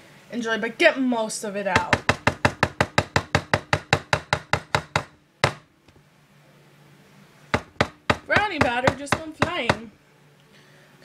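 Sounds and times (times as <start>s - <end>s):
spatula knocking on mixing bowl: 1.8s - 5.6s, 7.6s - 9.9s.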